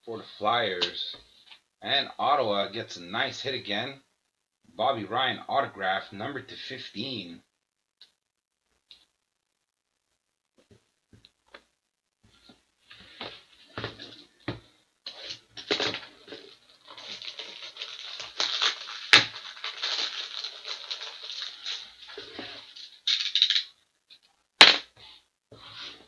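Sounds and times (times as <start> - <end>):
plastic sleeves rustling: 10.6 - 24.3.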